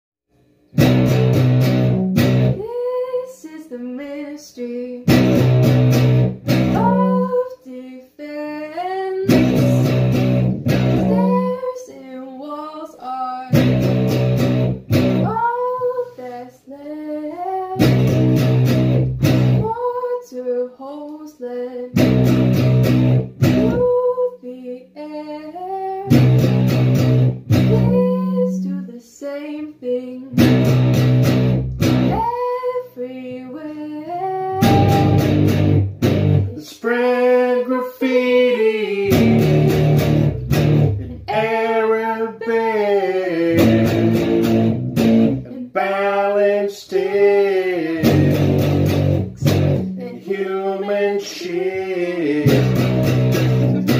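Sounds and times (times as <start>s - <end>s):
guitar strummed chords: 0.8s - 2.6s, 5.1s - 7.3s, 9.3s - 11.5s, 13.6s - 15.4s, 17.8s - 19.7s, 22.0s - 23.8s, 26.1s - 28.0s, 30.4s - 32.2s, 34.6s - 36.6s, 39.1s - 41.3s, 43.5s - 45.5s, 48.0s - 50.0s, 52.4s - 53.9s
woman singing: 2.6s - 5.2s, 6.7s - 10.1s, 10.9s - 13.6s, 15.2s - 18.6s, 19.6s - 22.0s, 23.4s - 26.3s, 27.6s - 30.5s, 32.0s - 35.4s, 36.5s - 39.9s, 41.0s - 44.4s, 49.8s - 52.8s.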